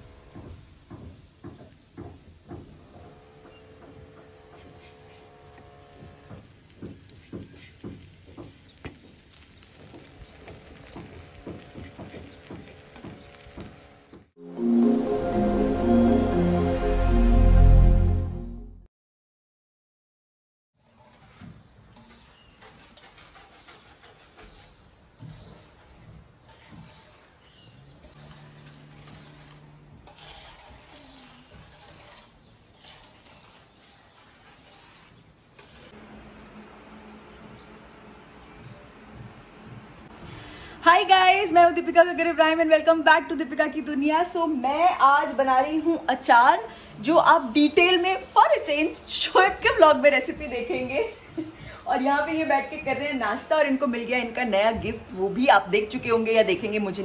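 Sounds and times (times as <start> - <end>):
butter sizzling: 5.9 - 14.3
soft irregular pops: 6.3 - 14.3
whisk scraping steel pot: 20.8 - 36.0.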